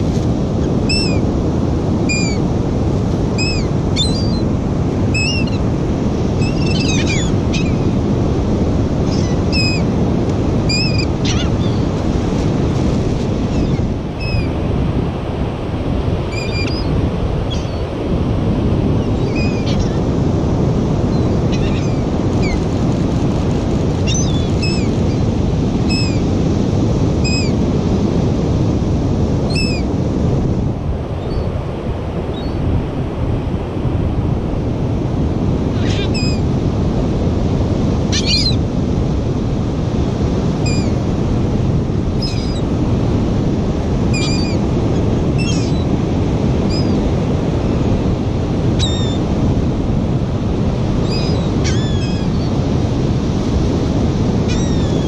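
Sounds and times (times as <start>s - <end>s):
surf rushing: 0.0s - 55.0s
wind on microphone: 0.0s - 55.0s
seagulls calling: 0.6s - 1.3s, 2.0s - 2.5s, 3.3s - 8.0s, 9.0s - 9.9s, 10.6s - 12.0s, 13.4s - 14.6s, 16.2s - 18.0s, 18.9s - 20.1s, 21.1s - 22.7s, 23.9s - 26.3s, 27.2s - 27.6s, 29.5s - 29.9s, 35.7s - 36.5s, 38.1s - 38.7s, 40.6s - 41.0s, 42.2s - 42.7s, 44.0s - 46.0s, 46.6s - 47.2s, 48.8s - 49.2s, 51.0s - 52.6s, 54.4s - 55.0s.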